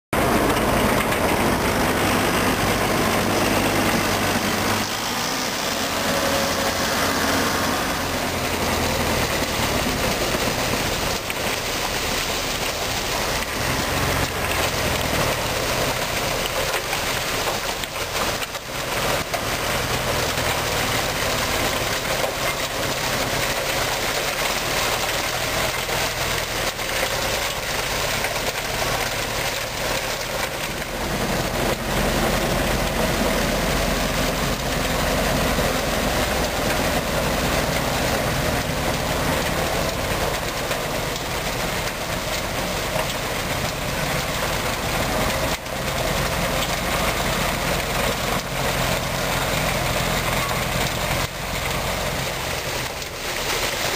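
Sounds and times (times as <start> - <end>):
tractor diesel engine running: 0.1 - 53.9
snow rushing from chute: 0.2 - 53.9.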